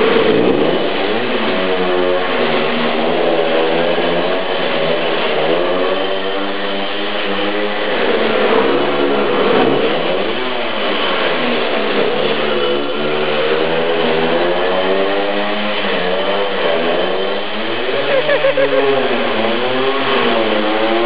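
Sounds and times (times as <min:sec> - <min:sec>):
moped engine at high revs: 0:00.0 - 0:21.0.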